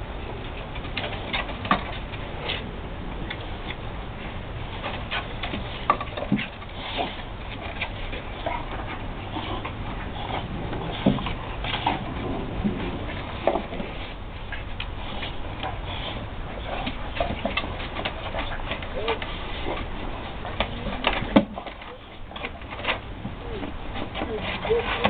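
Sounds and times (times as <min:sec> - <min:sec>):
dogs scuffling and clicking: 0:00.4 - 0:25.0
dog grunts: 0:08.4 - 0:13.3.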